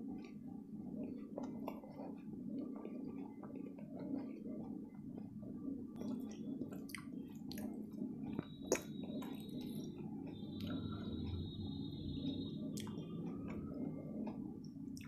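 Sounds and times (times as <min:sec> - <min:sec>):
chewing: 0:00.2 - 0:11.6, 0:12.3 - 0:15.0
wet mouth clicks: 0:06.0 - 0:07.8
faint steady high tone: 0:06.0 - 0:14.6.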